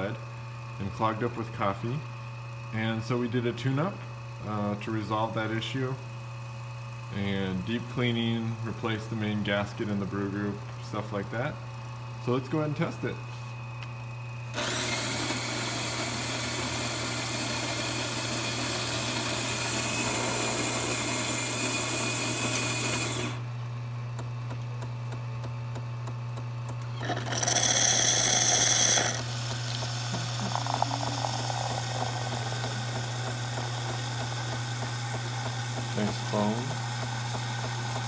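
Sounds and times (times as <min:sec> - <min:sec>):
coffee machine motor running: 0:00.0 - 0:38.0
low machine hum: 0:00.0 - 0:38.0
milk frother spurting foam: 0:14.6 - 0:23.4, 0:27.0 - 0:38.0.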